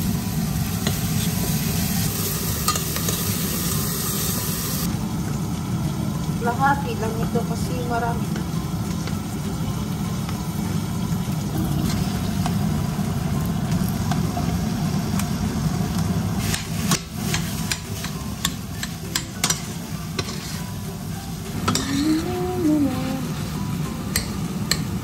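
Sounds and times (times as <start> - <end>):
onions frying: 0.0 - 25.0
metal spoon scraping and tapping: 17.3 - 20.7, 21.7 - 22.2, 24.1 - 24.9.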